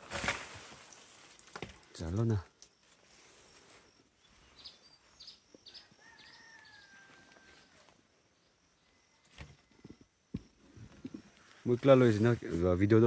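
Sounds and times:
rural ambience: 0.0 - 13.0
birdsong chirps and whistle: 2.7 - 7.0.

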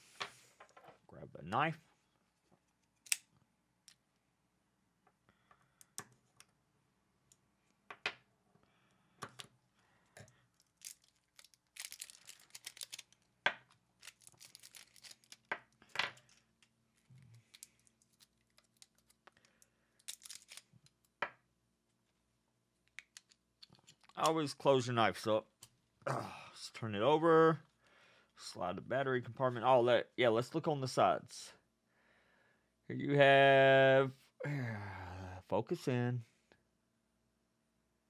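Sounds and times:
plastic wrap crinkling: 10.6 - 15.5, 20.0 - 21.0.

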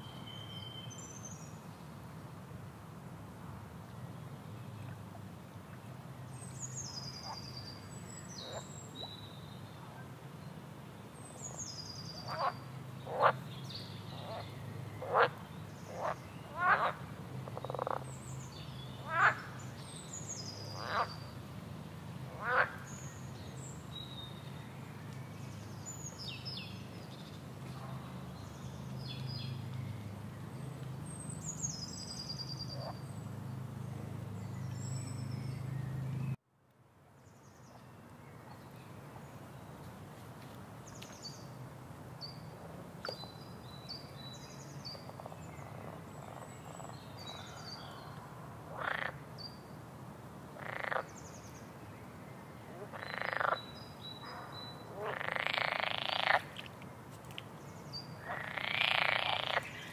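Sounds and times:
frogs croaking: 12.2 - 13.5, 14.2 - 18.1, 19.0 - 19.6, 20.6 - 21.3, 22.3 - 22.9, 48.7 - 49.3, 50.6 - 51.2, 52.8 - 56.8, 58.2 - 59.9.

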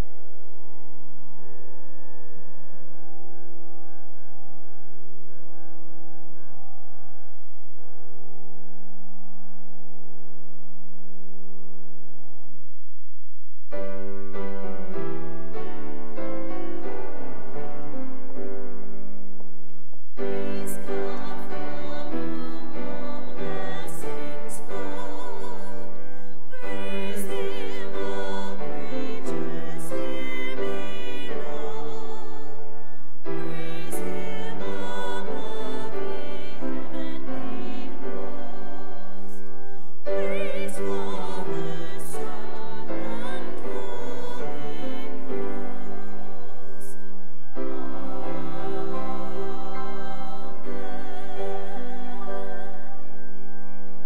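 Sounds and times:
piano accompaniment: 13.7 - 54.0
classical singing with vibrato: 20.2 - 54.0.

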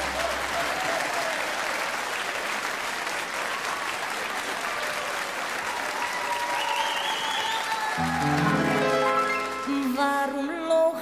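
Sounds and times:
audience applauding: 0.0 - 10.4
held notes of a song: 8.0 - 10.5.

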